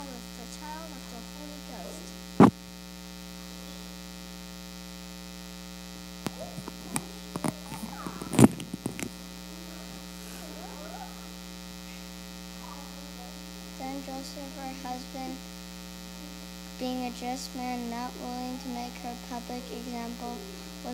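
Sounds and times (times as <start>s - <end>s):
electrical mains hum: 0.0s - 20.9s
microphone stand knocks and bumps: 6.3s - 9.1s.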